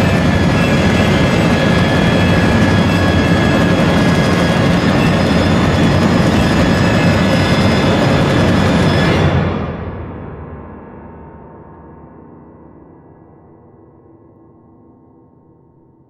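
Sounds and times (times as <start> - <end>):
high held tones: 0.0 - 9.8.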